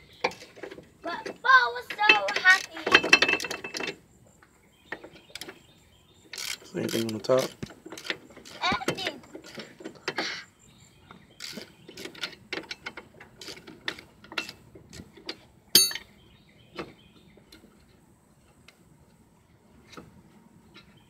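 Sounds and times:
ringing metal clink: 15.8s - 16.1s.

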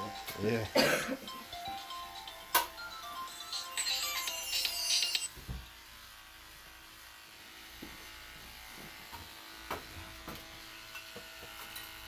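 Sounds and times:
electric clippers buzzing: 0.0s - 12.0s.

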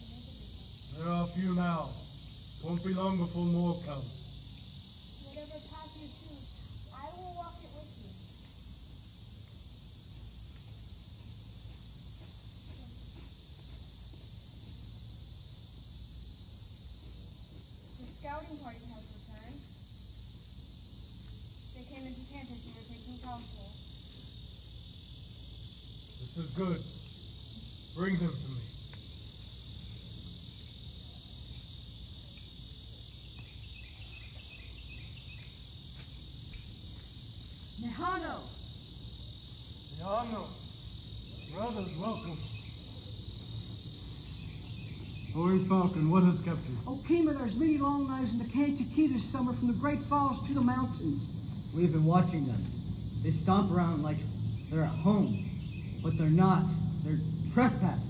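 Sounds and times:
high-pitched insect chorus: 0.0s - 58.0s
low rumble: 49.2s - 58.0s.

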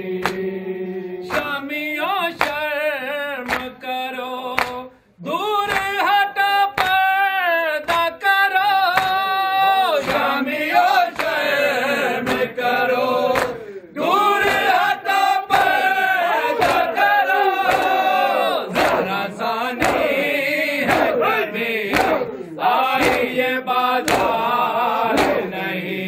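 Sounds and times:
men singing a mourning lament: 0.0s - 26.0s
chest-beating slaps: 0.2s - 0.5s, 13.3s - 13.8s, 15.5s - 25.6s.

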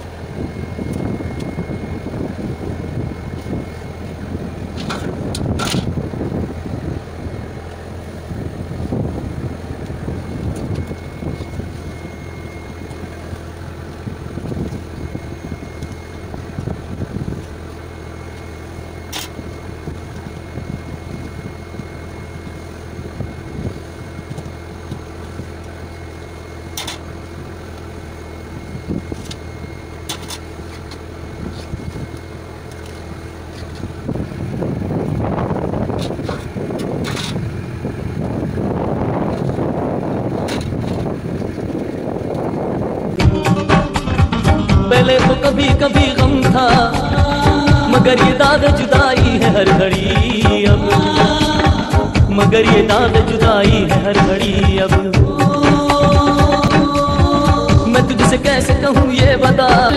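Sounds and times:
sharp clicks of galley work: 0.0s - 1.8s, 4.7s - 6.0s, 9.8s - 16.8s, 17.4s - 22.7s, 23.3s - 28.0s, 28.8s - 34.4s, 35.9s - 38.4s, 40.3s - 43.2s, 43.8s - 59.9s
boat engine droning: 0.0s - 59.9s.

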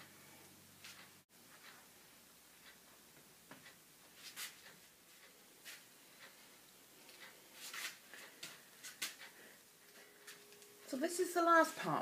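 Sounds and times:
drum carder scratchy rustles: 4.1s - 5.9s, 7.6s - 9.3s.

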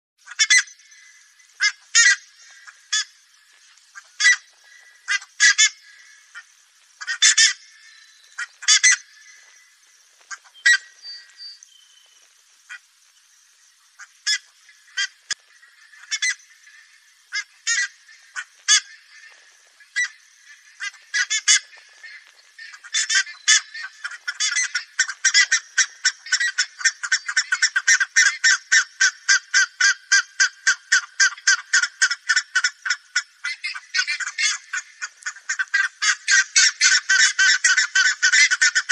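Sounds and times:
ibis calls: 0.2s - 38.9s.

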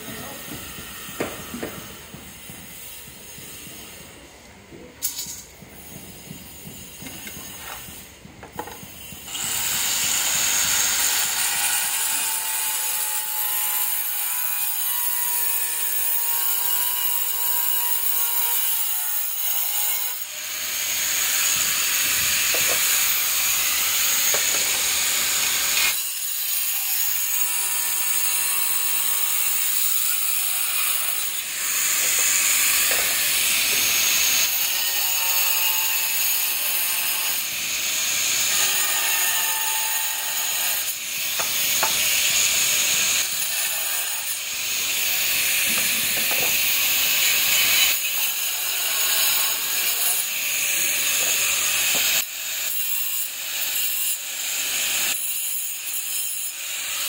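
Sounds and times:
angle grinder cutting tiles: 6.7s - 57.0s.

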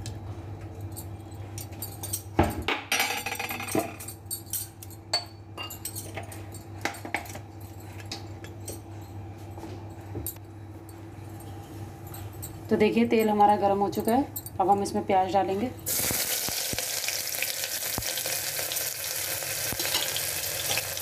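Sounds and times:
steady low hum: 0.0s - 16.3s.

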